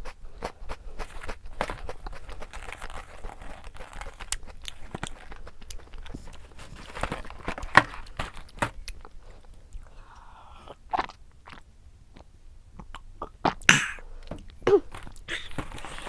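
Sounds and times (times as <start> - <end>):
person chewing a snack: 0.0 - 13.7, 14.4 - 16.0
snack packaging crinkling: 0.5 - 9.8, 14.9 - 16.0.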